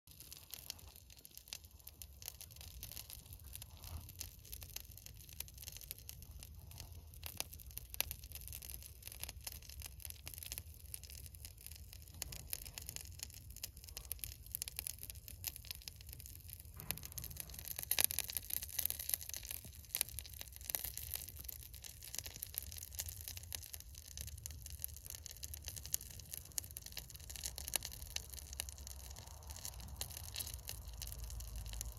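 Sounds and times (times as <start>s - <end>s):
resin crackling and sizzling: 0.1s - 31.9s
low steady rumble: 23.5s - 31.9s.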